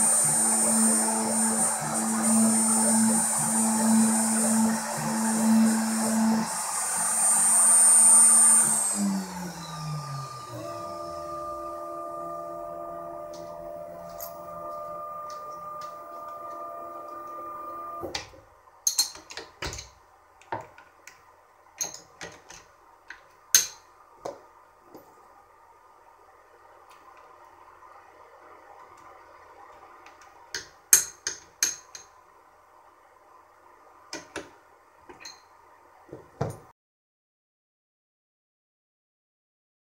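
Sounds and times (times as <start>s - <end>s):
spindle whine spinning down: 0.0s - 18.1s
steady electrical hum: 0.0s - 36.4s.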